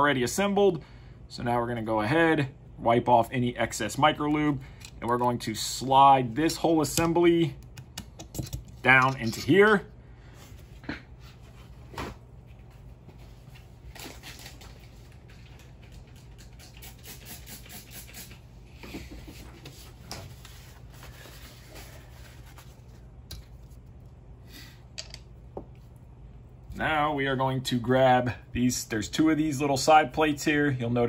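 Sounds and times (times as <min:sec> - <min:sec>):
steady low hum: 0:00.0 - 0:31.0
small parts clicking and scratching: 0:07.7 - 0:09.7, 0:25.0 - 0:25.3.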